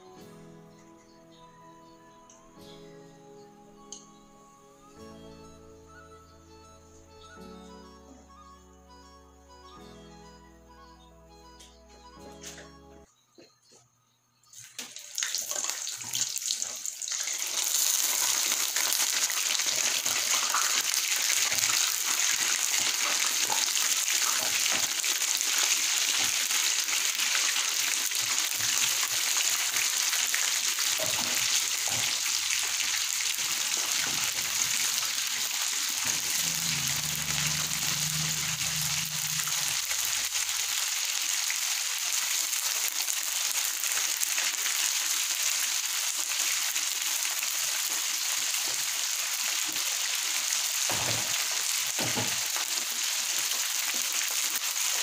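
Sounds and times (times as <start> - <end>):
chicken deep-frying in oil: 14.6 - 55.0.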